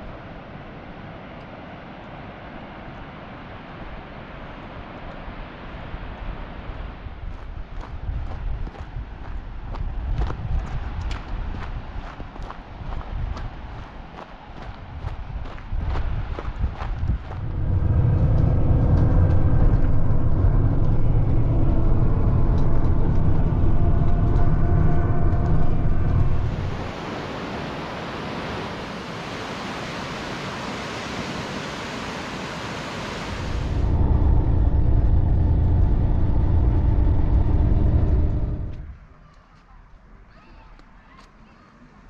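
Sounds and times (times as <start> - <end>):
vehicle engine rumbling: 15.0 - 27.0, 33.3 - 40.2.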